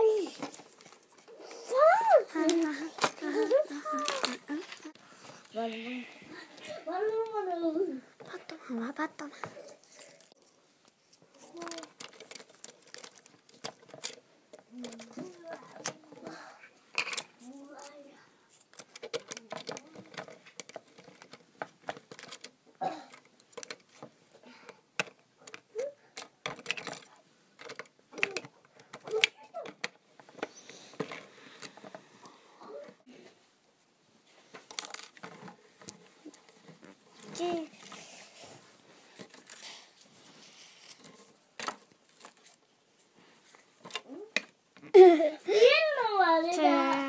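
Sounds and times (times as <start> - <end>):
plastic bricks clicking: 11.4 - 16.0, 18.7 - 24.1, 25.0 - 32.0, 34.7 - 36.0.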